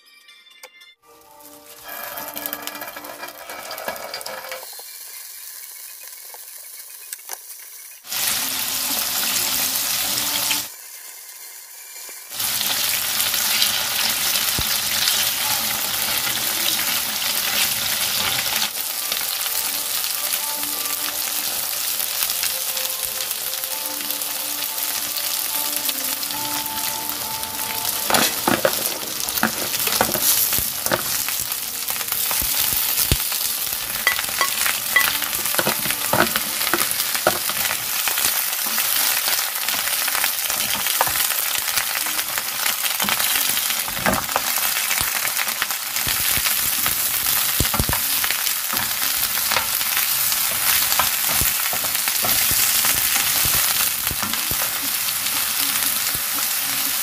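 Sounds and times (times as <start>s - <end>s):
tofu sizzling in oil: 4.6s - 57.0s
wooden spatula clicking and scraping: 28.1s - 41.9s, 46.1s - 54.8s.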